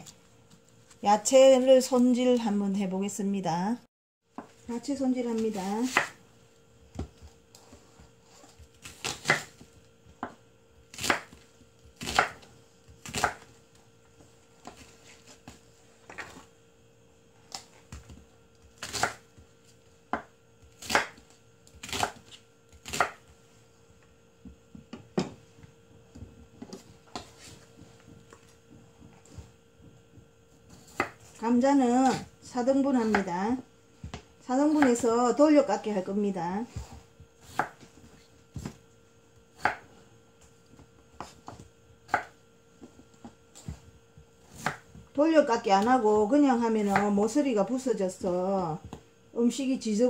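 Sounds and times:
knife chopping on wooden board: 0:05.8 - 0:06.2, 0:06.9 - 0:13.6, 0:17.5 - 0:19.4, 0:20.0 - 0:23.3, 0:24.4 - 0:31.4, 0:36.7 - 0:38.8, 0:39.4 - 0:39.9, 0:40.7 - 0:45.1.

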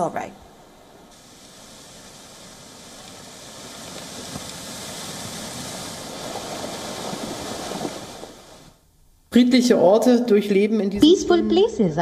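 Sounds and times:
floodwater rushing: 0:00.5 - 0:08.8.

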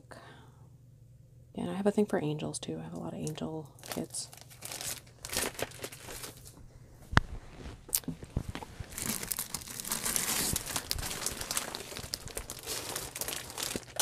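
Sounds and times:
plastic packaging crinkling: 0:03.8 - 0:06.6, 0:07.3 - 0:14.0.

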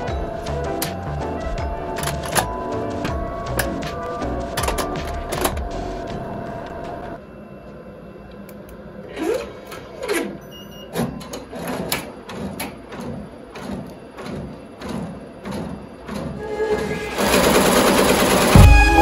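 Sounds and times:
embroidery machine clacking: 0:00.0 - 0:07.2.

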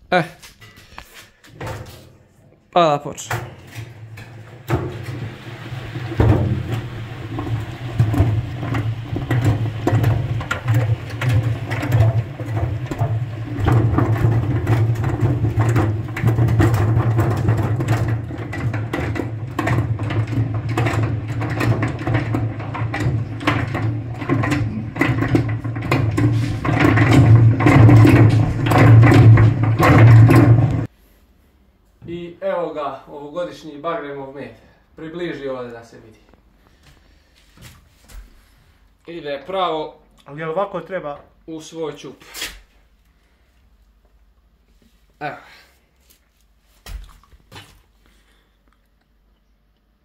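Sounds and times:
honey extractor humming and clattering: 0:03.3 - 0:30.9.

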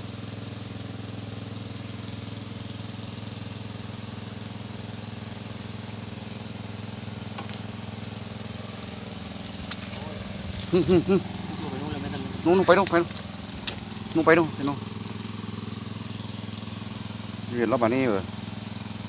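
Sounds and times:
water pump engine running: 0:00.0 - 0:19.0
muddy water rushing: 0:07.6 - 0:19.0.

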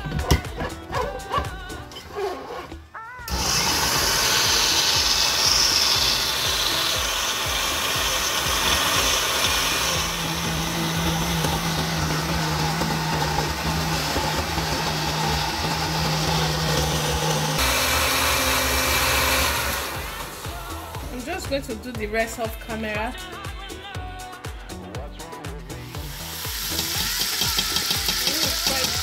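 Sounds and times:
countertop blender running: 0:03.3 - 0:21.2, 0:26.0 - 0:29.0.

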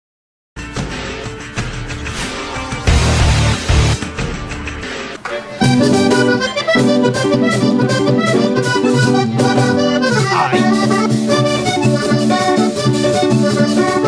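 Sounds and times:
button accordion melody: 0:05.4 - 0:14.0.

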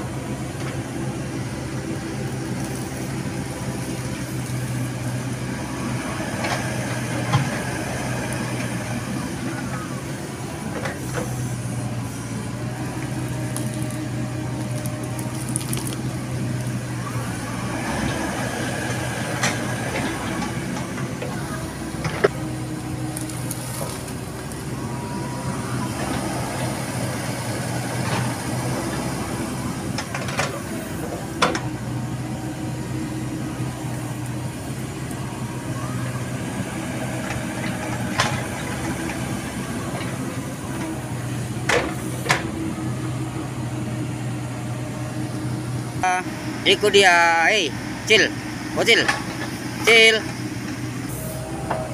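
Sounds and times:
excavator diesel engine running: 0:00.0 - 0:51.9.

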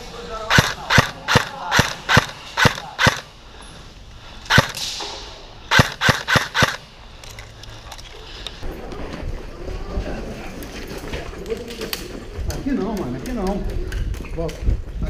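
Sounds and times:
airsoft gun single shots: 0:00.5 - 0:03.3, 0:04.5 - 0:05.0, 0:05.7 - 0:06.8.

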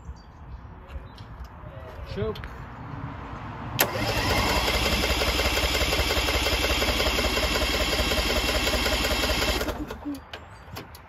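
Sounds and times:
electric starter cranking engine: 0:03.8 - 0:10.1.

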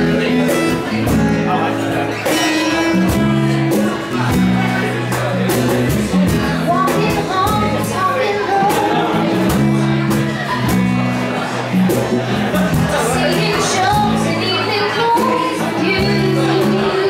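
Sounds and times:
strummed acoustic guitars: 0:00.0 - 0:17.0
woman singing: 0:06.6 - 0:09.2, 0:13.1 - 0:17.0.

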